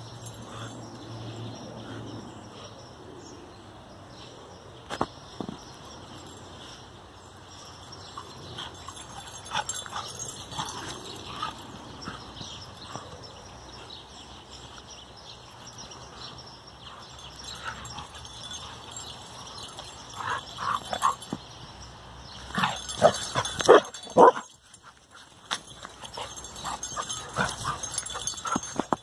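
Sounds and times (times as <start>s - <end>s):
dog yipping and barking: 23.0s - 24.5s.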